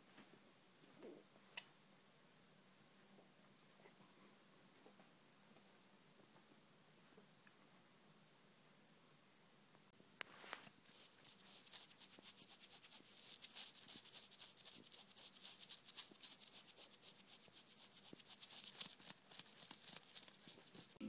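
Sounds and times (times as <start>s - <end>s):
rapid scratchy rubbing strokes: 10.8s - 21.0s.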